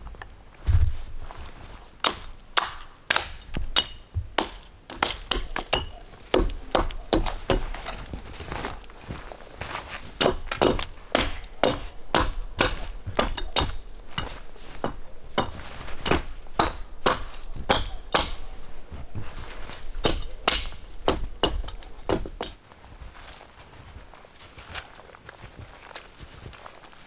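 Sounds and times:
hatchet chopping branches: 0:02.0 - 0:08.1, 0:10.2 - 0:18.6, 0:19.8 - 0:22.6.

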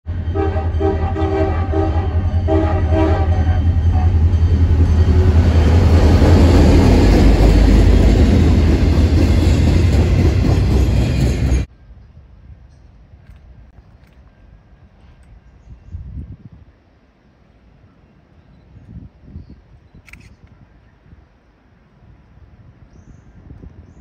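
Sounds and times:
locomotive horn blasts: 0:00.1 - 0:04.4
locomotive engine: 0:00.1 - 0:11.7
train wheels rolling: 0:00.2 - 0:11.7.

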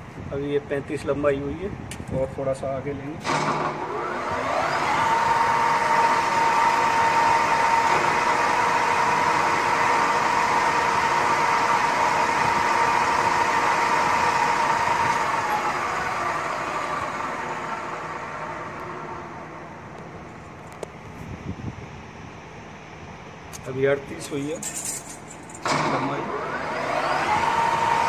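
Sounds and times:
lathe motor whining: 0:03.3 - 0:19.9, 0:25.6 - 0:28.0.

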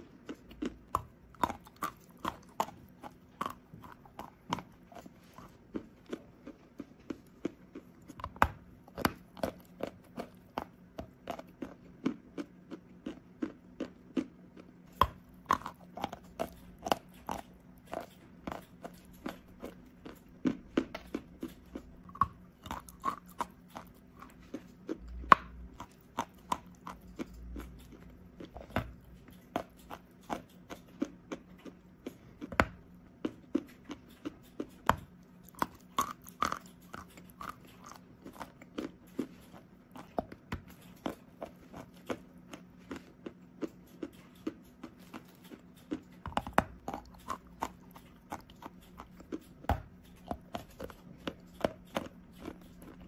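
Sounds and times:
chalk being chewed: 0:00.0 - 0:53.0.

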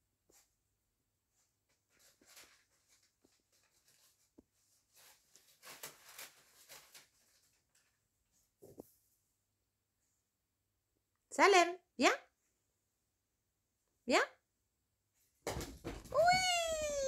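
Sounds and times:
faint rustling and scratching: 0:00.2 - 0:09.3.

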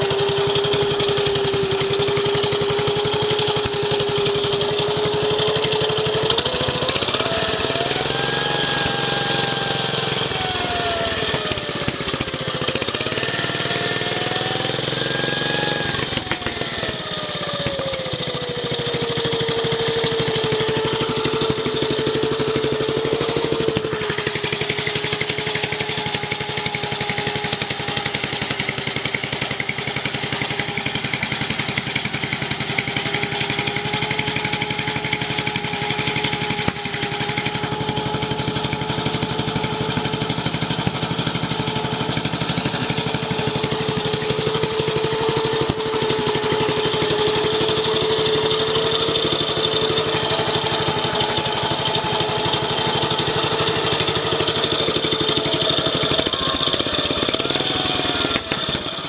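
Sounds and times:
single-cylinder engine running: 0:00.0 - 0:59.0
piston slap: 0:34.8 - 0:37.8, 0:40.6 - 0:41.9, 0:42.6 - 0:49.0, 0:58.2 - 0:59.0.

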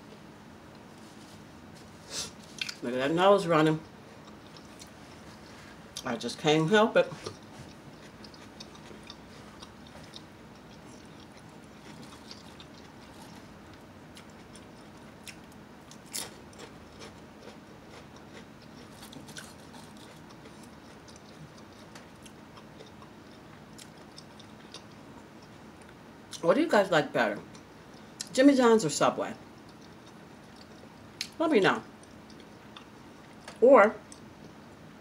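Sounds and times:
person chewing potato chips: 0:02.2 - 0:02.8, 0:03.8 - 0:06.1, 0:07.1 - 0:26.0, 0:29.6 - 0:31.4.

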